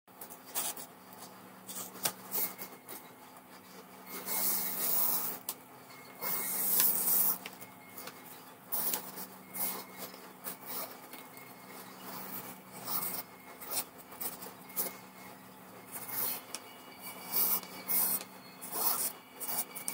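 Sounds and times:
faint steady hum: 0:00.1 - 0:19.9
marker scratching on paper: 0:11.8 - 0:15.0, 0:15.9 - 0:19.9.

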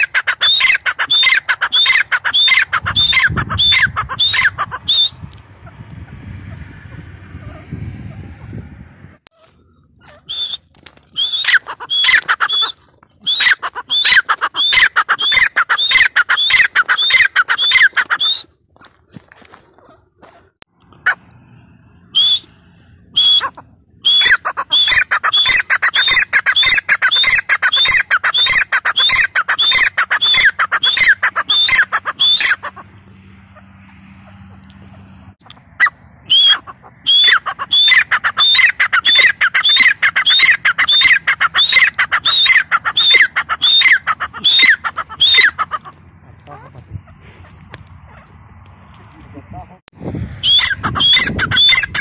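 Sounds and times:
francolin calling: 0:00.0 - 0:05.8, 0:10.0 - 0:18.5, 0:23.2 - 0:32.7, 0:35.5 - 0:45.9.

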